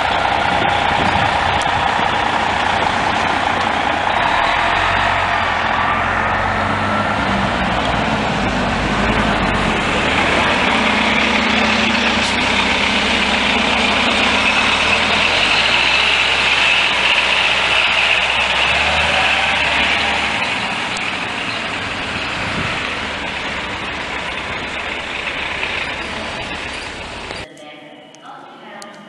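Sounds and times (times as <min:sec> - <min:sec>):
bus diesel engine passing: 0:00.0 - 0:27.5
steady high whine: 0:20.7 - 0:27.5.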